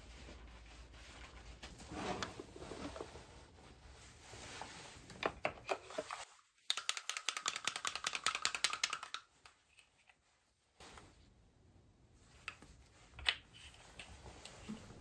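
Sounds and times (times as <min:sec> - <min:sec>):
rapid small clicks: 0:06.6 - 0:09.6.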